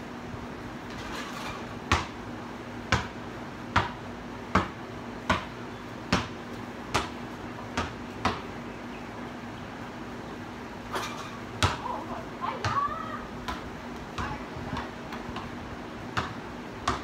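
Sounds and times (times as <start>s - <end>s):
basketball bouncing on concrete: 0.9s - 2.2s, 2.8s - 8.6s, 11.1s - 11.9s, 12.6s - 17.0s.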